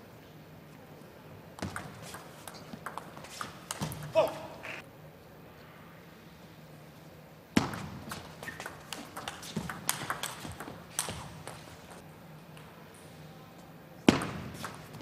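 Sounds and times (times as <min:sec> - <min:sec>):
table tennis ball clicking: 0:01.6 - 0:04.1, 0:08.4 - 0:11.6.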